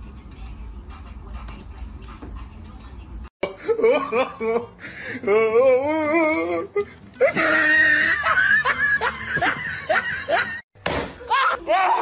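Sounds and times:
person laughing hard: 3.4 - 10.6.

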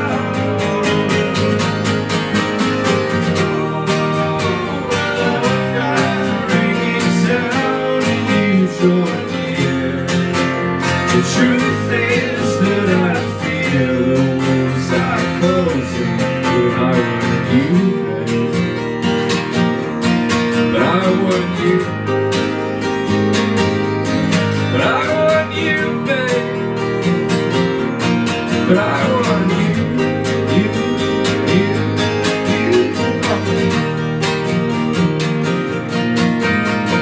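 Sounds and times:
person singing: 0.0 - 2.0, 3.0 - 18.9, 28.6 - 34.0
acoustic guitars strumming: 0.0 - 37.0
electric bass: 0.0 - 37.0.

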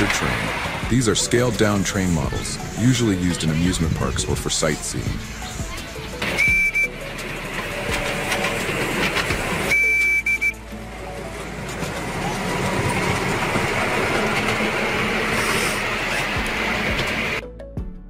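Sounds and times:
miniature train running on track: 0.0 - 17.4
high train whistle toot: 6.3 - 7.0, 9.7 - 10.7.

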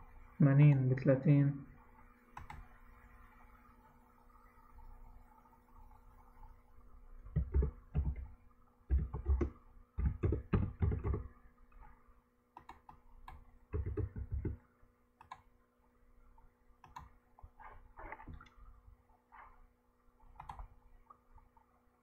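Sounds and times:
faint steady hum: 0.0 - 22.0
computer keyboard typing: 2.4 - 2.6, 7.3 - 8.3, 8.9 - 11.3, 12.6 - 14.6, 16.8 - 17.2, 20.3 - 20.7.

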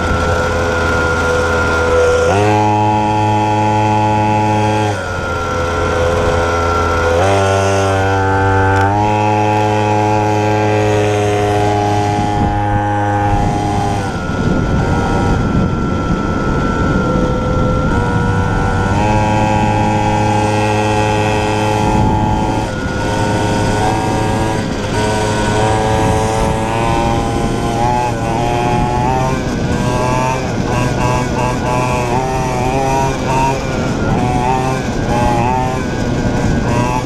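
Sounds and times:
dirt bike engine running hard: 0.0 - 37.0
rushing noise: 0.0 - 37.0.

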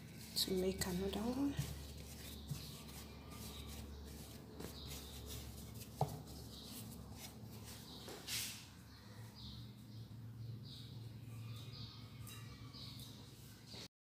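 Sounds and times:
hands rubbing and tapping dough: 0.4 - 8.2.

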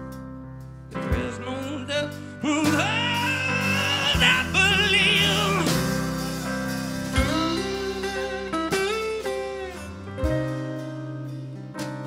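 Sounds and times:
resonator guitar: 0.9 - 12.0
person singing with vibrato: 1.1 - 8.6.

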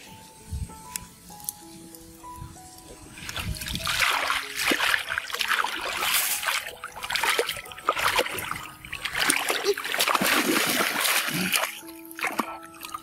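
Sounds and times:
muddy water splashing: 3.2 - 13.0.

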